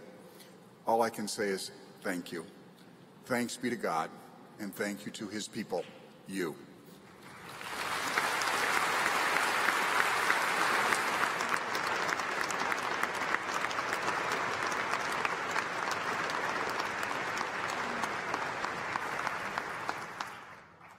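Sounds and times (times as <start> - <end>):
audience applauding: 7.2 - 20.9.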